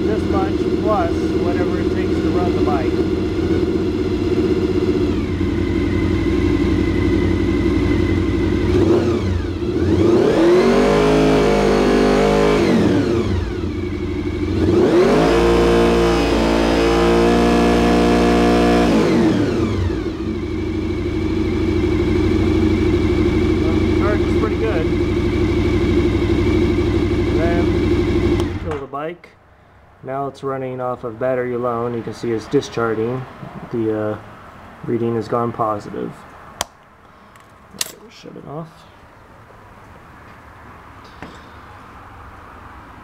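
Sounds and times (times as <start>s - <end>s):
motorcycle engine idling and revving: 0.0s - 28.9s.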